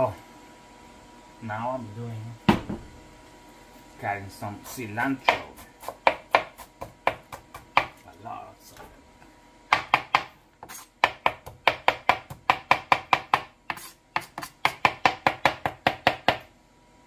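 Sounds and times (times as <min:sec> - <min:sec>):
knife chopping on cutting board: 0:05.2 - 0:08.0, 0:09.7 - 0:16.5.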